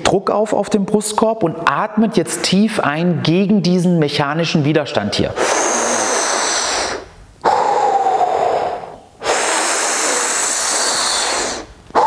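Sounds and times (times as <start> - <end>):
man breathing forcefully: 5.4 - 12.0.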